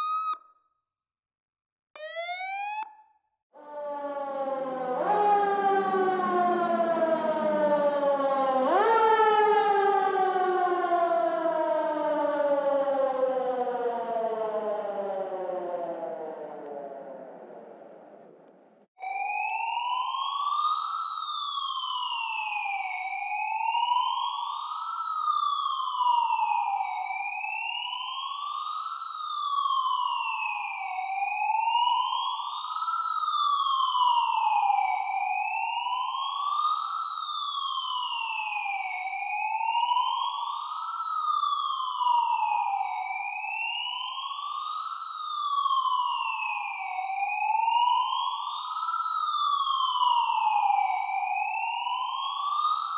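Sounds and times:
siren wailing: 0.0 - 0.4, 2.0 - 52.9.

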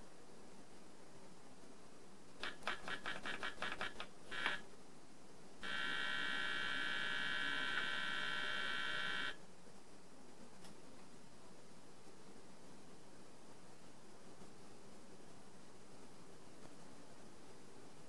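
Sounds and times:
steady computer tone: 5.6 - 9.4.

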